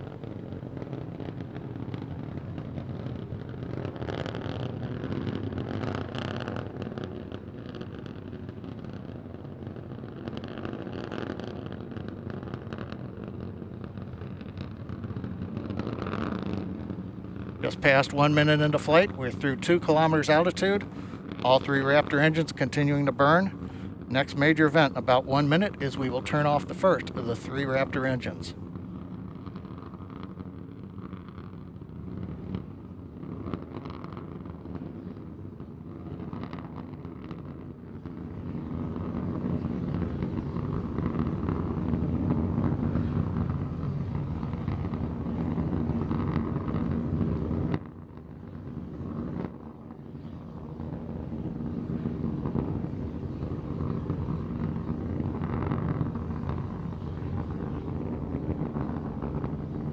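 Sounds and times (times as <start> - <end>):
rocket engines roaring: 0.0 - 59.9.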